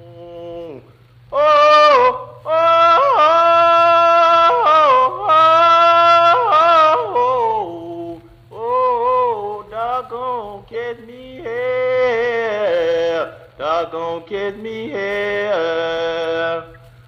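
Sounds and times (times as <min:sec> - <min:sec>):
low recording hum: 0:00.0 - 0:17.0.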